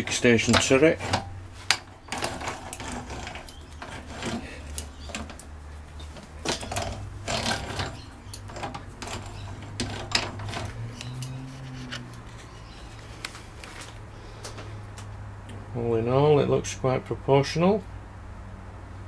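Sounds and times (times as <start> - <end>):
metal gear clicks and rubbing: 0.4 - 12.7.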